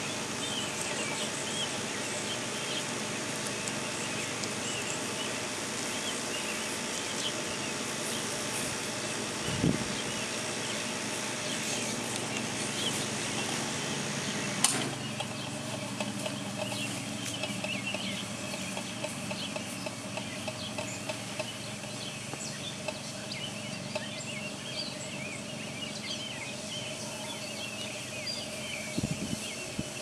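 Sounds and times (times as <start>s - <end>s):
faint steady hum: 0.0s - 30.0s
sharp click: 14.6s - 15.0s.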